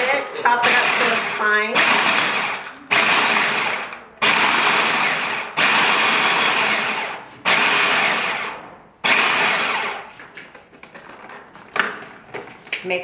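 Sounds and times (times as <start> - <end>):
food processor pulsing: 0.5 - 10.1.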